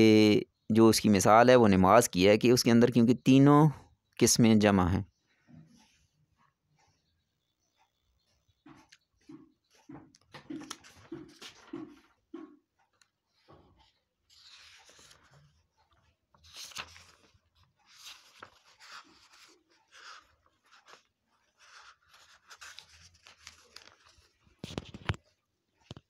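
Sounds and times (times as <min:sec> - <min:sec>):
rustling and scraping: 0:08.7 - 0:25.4.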